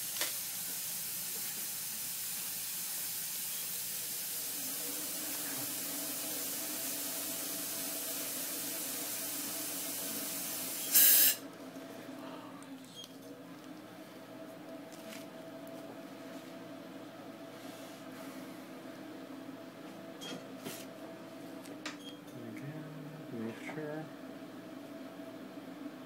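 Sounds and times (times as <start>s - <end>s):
dental equipment hissing: 0.2s - 11.4s
faint low hum: 11.4s - 20.0s.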